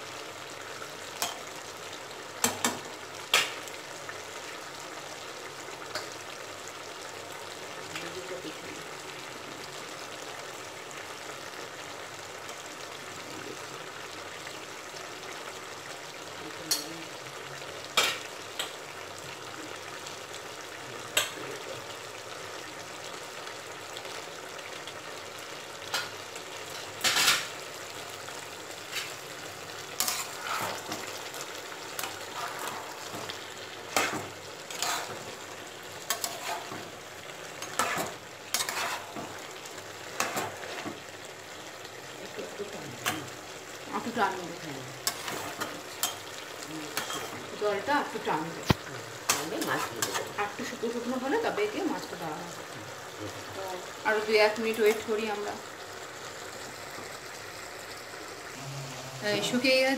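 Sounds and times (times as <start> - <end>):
curry sizzling in a pan: 0.0 - 59.9
spatula scraping a pan: 30.0 - 41.0, 45.0 - 47.5, 49.2 - 50.4.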